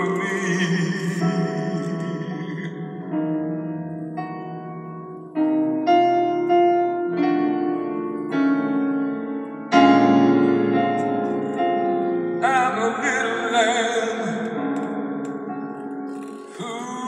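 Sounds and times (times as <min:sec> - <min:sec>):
man singing with vibrato: 0:00.0 - 0:03.3, 0:12.4 - 0:14.7, 0:16.5 - 0:17.0
slow piano chords: 0:00.0 - 0:17.0.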